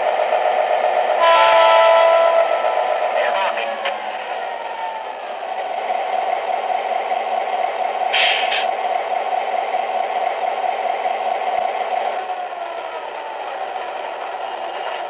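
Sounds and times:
model train engine sound: 0.0 - 15.0
short hisses: 8.1 - 8.7.

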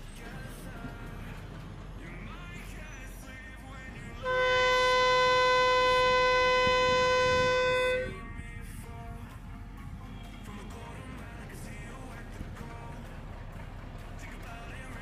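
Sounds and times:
locomotive air horn blast: 4.2 - 8.3.

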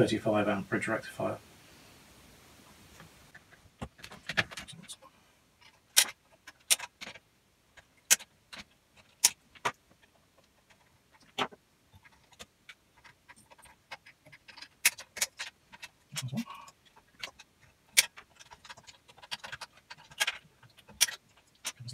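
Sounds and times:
metal parts clicking: 12.0 - 21.9.

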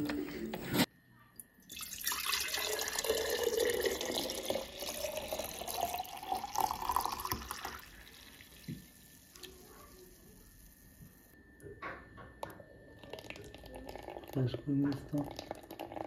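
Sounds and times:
water pouring into glass jar: 1.6 - 9.6, 13.0 - 16.0.

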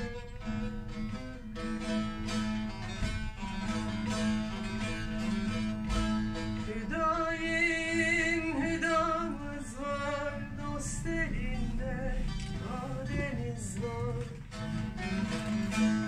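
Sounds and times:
plucked lute melody: 0.0 - 16.0
person singing long wavering notes: 6.6 - 14.4.

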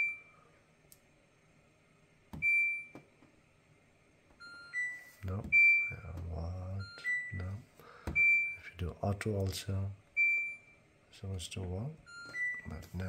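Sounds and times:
dishwasher control panel beeps: 2.4 - 3.0, 4.4 - 6.1, 8.1 - 8.6, 10.2 - 10.7, 12.1 - 12.7.

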